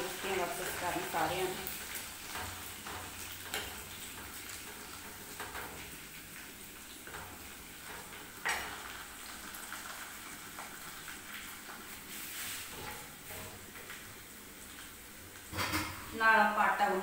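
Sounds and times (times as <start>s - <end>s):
oil sizzling in a pan: 0.0s - 17.0s
metal ladle scraping pan: 12.1s - 13.6s.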